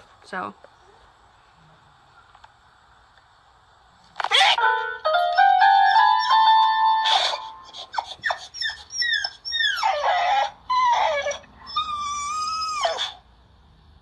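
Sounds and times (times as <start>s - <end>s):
electronic keyboard notes: 4.6s - 7.7s
dog whining and yowling: 5.3s - 13.2s.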